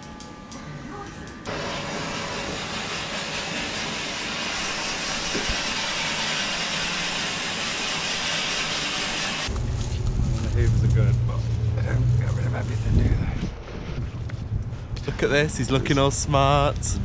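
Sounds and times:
vacuum hose hissing: 1.5 - 9.5.

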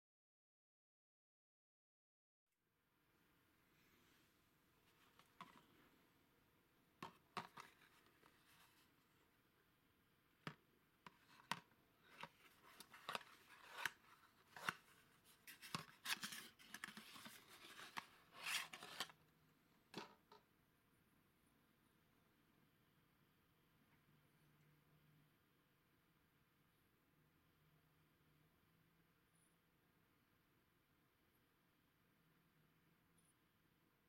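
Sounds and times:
cardboard scraping and rustling: 11.2 - 19.2.

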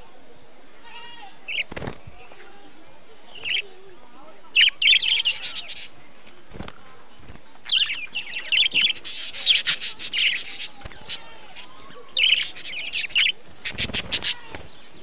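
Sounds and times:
budgerigars chirping: 1.4 - 1.9, 3.3 - 3.8, 4.5 - 6.0, 7.5 - 15.0.

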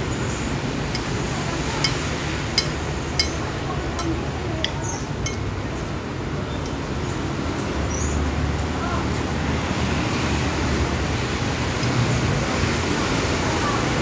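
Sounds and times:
metal spoon clinking bowl: 1.8 - 5.5.

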